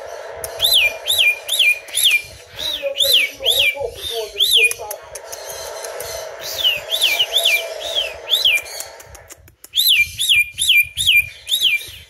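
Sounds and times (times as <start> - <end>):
cockatiel whistling: 0.6 - 4.8, 6.4 - 8.9, 9.7 - 12.0.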